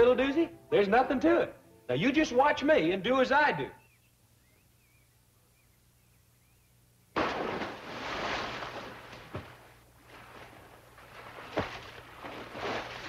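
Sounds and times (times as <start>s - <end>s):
big splash of diver: 7.2s - 13.0s
splashing and churning water: 7.2s - 13.0s.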